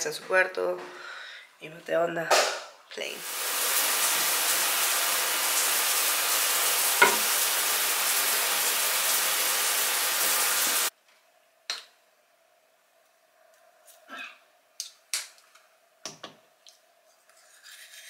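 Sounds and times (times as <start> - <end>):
steady hissing noise: 3.2 - 14.0.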